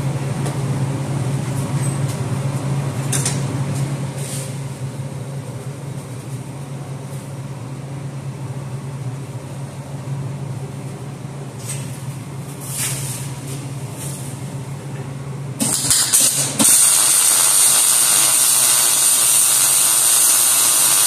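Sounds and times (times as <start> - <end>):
machine humming: 13.7 - 21.0.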